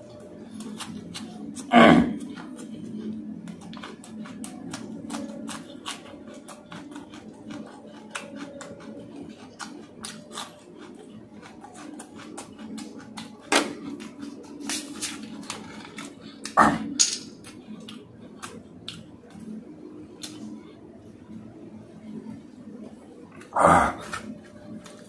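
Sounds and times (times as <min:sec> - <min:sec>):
chewing and mouth smacking: 0:00.5 - 0:20.5.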